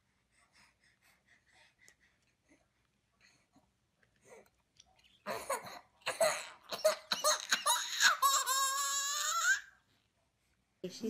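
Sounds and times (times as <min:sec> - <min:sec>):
infant crying: 0:05.3 - 0:09.7.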